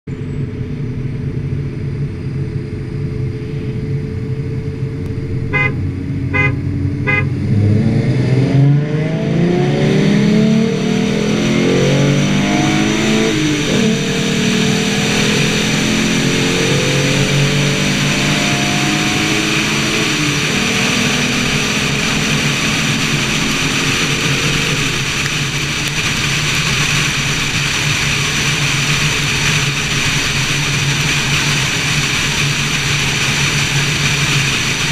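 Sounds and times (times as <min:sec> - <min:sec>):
car engine accelerating: 0:00.1 - 0:34.9
road and wind noise: 0:00.1 - 0:34.9
car horn beeps: 0:05.5 - 0:07.4.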